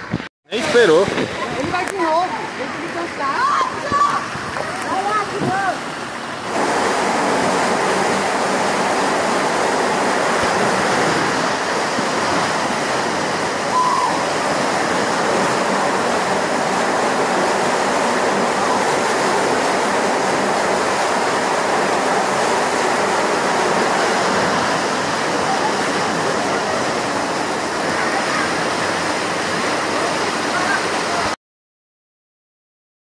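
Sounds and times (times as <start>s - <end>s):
rush of falling water: 0.0s - 31.4s.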